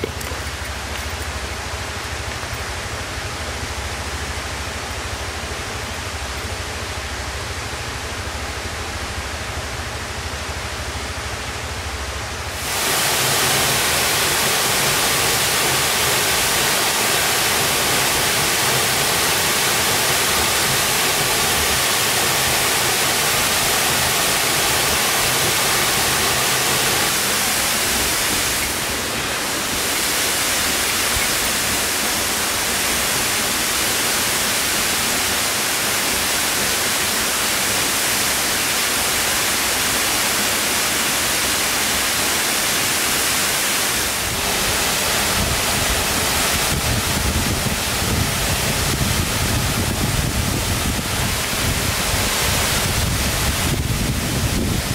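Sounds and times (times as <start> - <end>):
waterfall rushing: 12.2 - 54.9.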